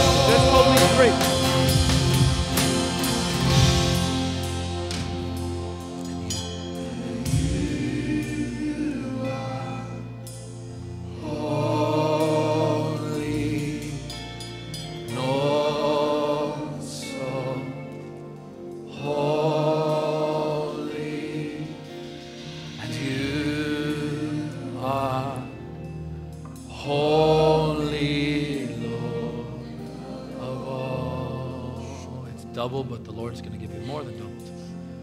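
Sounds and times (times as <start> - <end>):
acoustic guitar: 0.0 - 7.7
band playing backing chords: 0.0 - 35.0.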